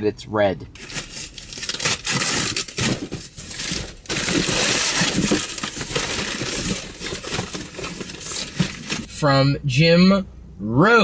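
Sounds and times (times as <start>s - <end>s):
cardboard tearing: 0.8s - 9.1s.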